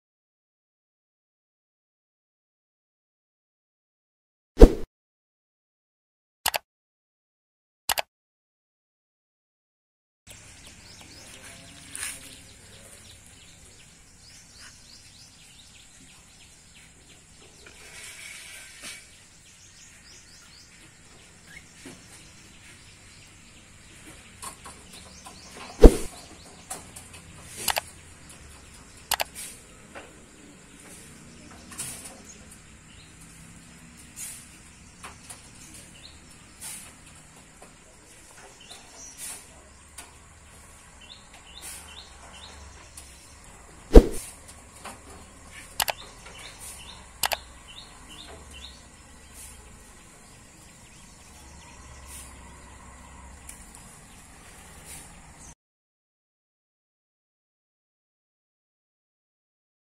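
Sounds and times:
birds chirping: 0:10.3 - 0:44.4, 0:45.0 - 0:55.6
thump: 0:25.8 - 0:26.1
sharp clicks: 0:27.6 - 0:27.9, 0:29.1 - 0:29.4, 0:45.8 - 0:46.0, 0:47.2 - 0:47.4.

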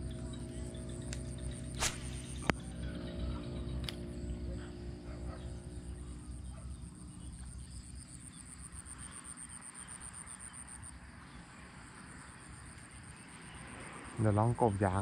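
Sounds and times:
low rumble: 0:00.0 - 0:06.5
insects trilling: 0:00.0 - 0:15.0.

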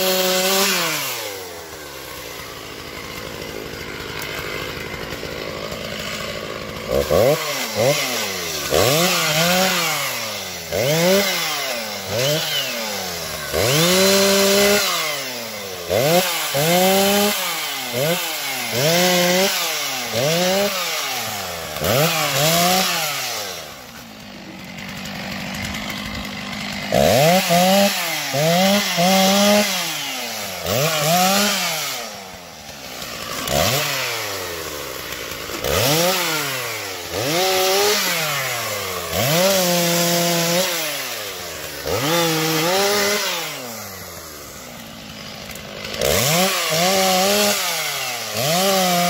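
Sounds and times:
chainsaw idling and revving: 0:00.0 - 0:49.0.

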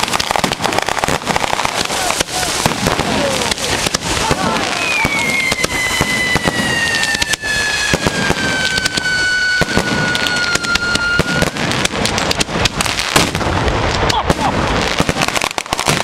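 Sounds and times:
firecracker bangs: 0:00.0 - 0:16.0
descending whistle: 0:04.7 - 0:11.3.

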